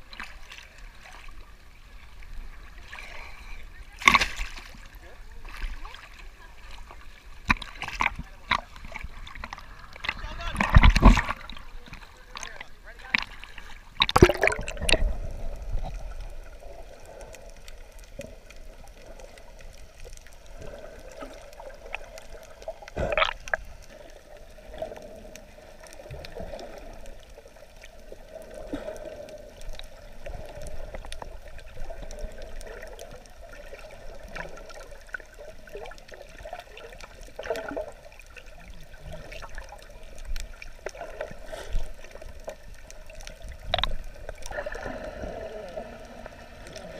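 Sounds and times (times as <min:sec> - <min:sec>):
muffled underwater gurgling: 0:07.7 - 0:19.7, 0:20.4 - 0:46.9
loud splash: 0:14.0 - 0:15.0.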